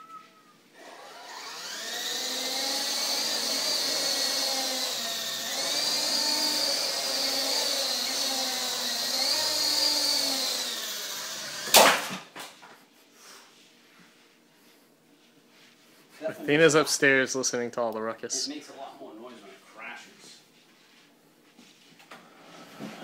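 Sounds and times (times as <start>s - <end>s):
toy helicopter rotors whining: 0.8s - 11.8s.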